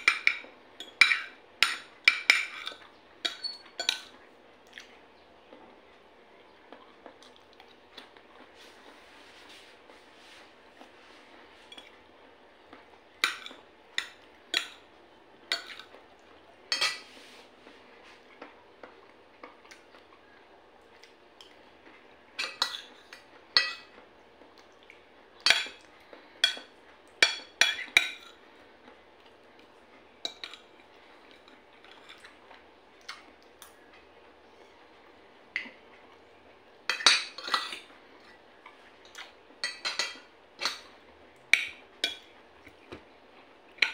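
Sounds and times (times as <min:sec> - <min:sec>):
cutlery clinking on plate: 0:00.0 - 0:04.1, 0:16.7 - 0:17.1.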